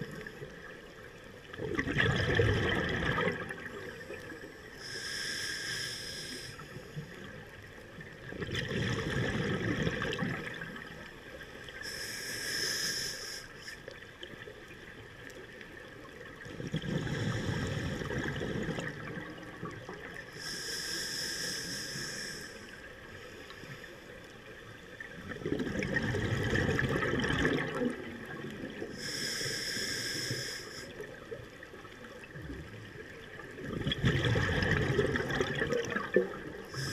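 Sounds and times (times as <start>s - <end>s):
bubbling exhale underwater: 1.5s - 4.3s, 8.2s - 11.0s, 16.5s - 20.2s, 25.2s - 29.1s, 33.4s - 36.9s
diver inhaling through regulator: 4.0s - 7.3s, 11.8s - 13.9s, 16.8s - 19.0s, 20.3s - 24.0s, 28.9s - 31.1s, 36.1s - 36.9s.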